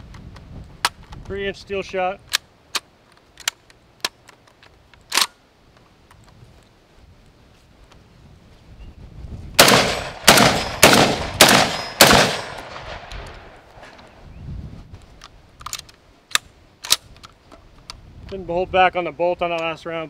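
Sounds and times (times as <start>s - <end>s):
gun handling clicks: 2.2s - 6.4s, 15.0s - 18.4s
shotgun firing: 9.6s - 13.6s.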